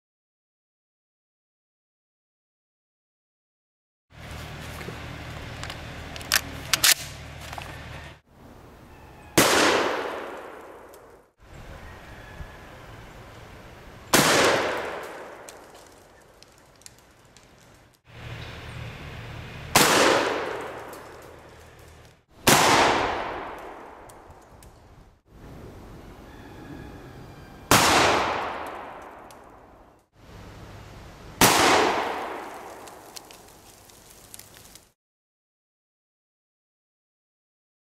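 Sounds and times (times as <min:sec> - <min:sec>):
shells loaded into shotgun: 0:05.6 - 0:07.7
shotgun blast with echo: 0:09.4 - 0:10.7, 0:19.8 - 0:20.7, 0:22.4 - 0:24.0, 0:27.7 - 0:29.0, 0:31.4 - 0:32.5.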